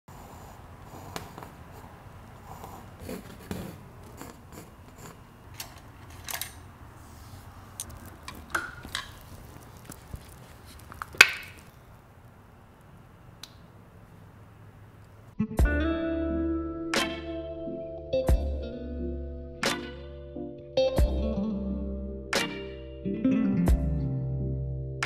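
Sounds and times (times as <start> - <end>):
painting supplies clicking and tapping: 7.8 - 9.8.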